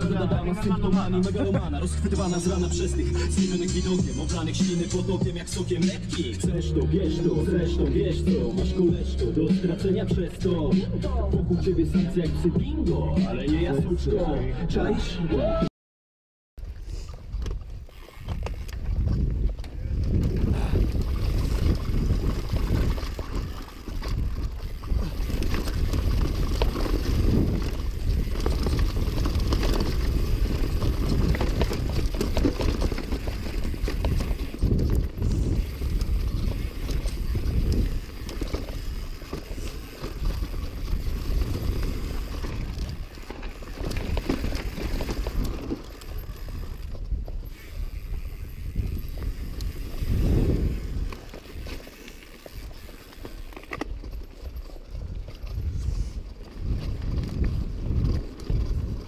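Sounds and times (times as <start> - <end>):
bike knocking and rattling: 16.6 - 59.0
bike tyres rumbling over stones: 16.6 - 59.0
wind buffeting microphone: 16.7 - 59.0.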